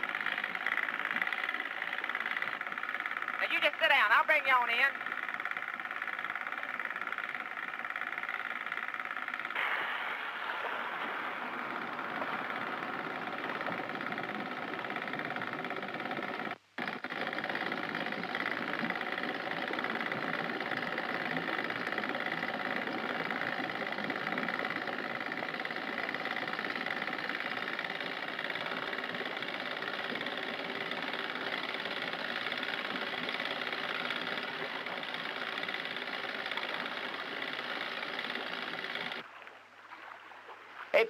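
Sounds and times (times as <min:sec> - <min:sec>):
outboard boat motors running: 0:00.0 - 0:41.0.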